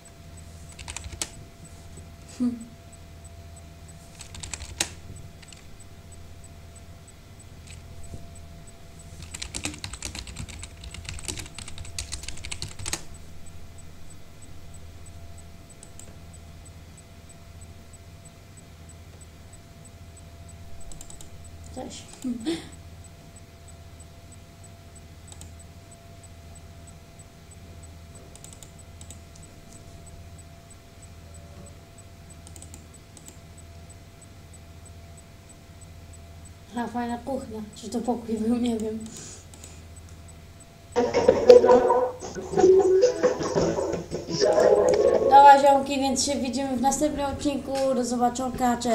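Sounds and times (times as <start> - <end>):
low steady hum: 0.0 - 48.9
soft computer clicks: 0.7 - 1.4, 4.1 - 5.7, 7.6 - 8.5, 15.0 - 16.4, 20.8 - 22.3, 24.6 - 26.4, 27.8 - 33.9, 38.7 - 40.3
typing on computer keyboard: 0.7 - 1.4, 4.1 - 5.7, 9.2 - 13.1, 20.9 - 21.3, 28.3 - 29.2, 32.4 - 33.4.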